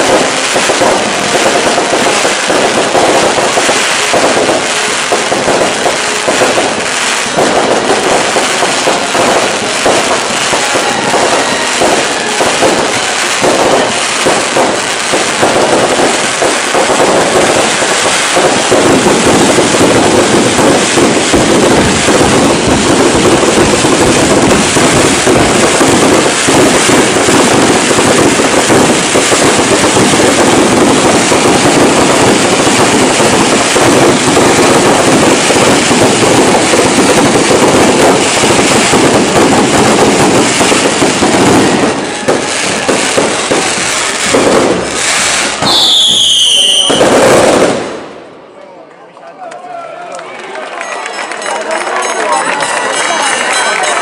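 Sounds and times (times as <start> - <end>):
fireworks bursting: 0.0 - 48.6, 50.8 - 54.0.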